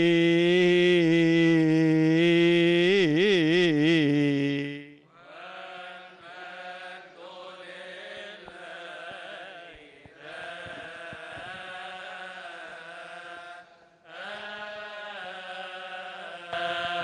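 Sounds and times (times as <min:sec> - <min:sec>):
man chanting amplified: 0:00.0 - 0:17.0
choir chanting: 0:04.4 - 0:17.0.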